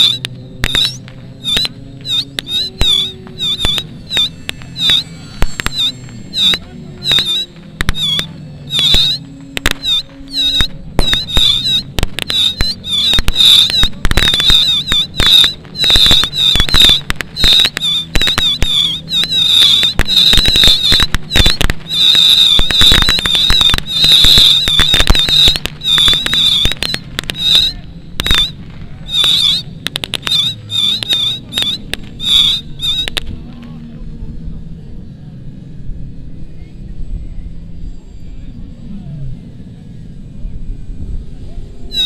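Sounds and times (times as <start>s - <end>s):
high warbling whistle: 0.0s - 33.2s
model aircraft engines droning: 0.0s - 42.0s.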